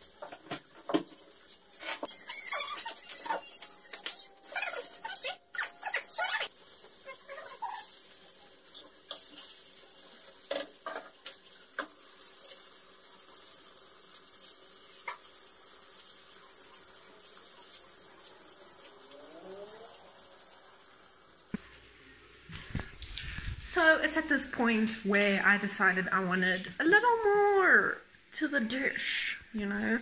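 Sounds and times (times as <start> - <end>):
chicken sizzling in a pan: 0.0 - 5.1, 5.7 - 22.5.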